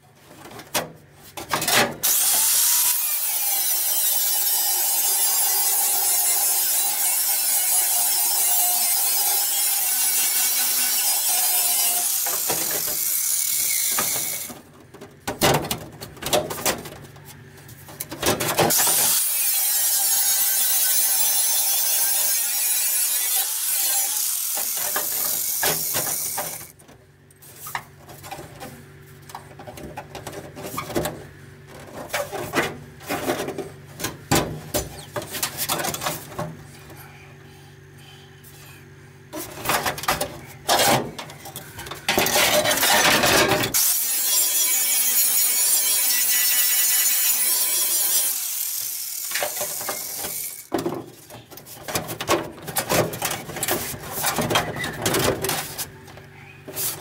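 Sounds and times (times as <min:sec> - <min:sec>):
angle grinder grinding metal: 0:02.0 - 0:14.5, 0:18.7 - 0:26.7, 0:42.1 - 0:50.7.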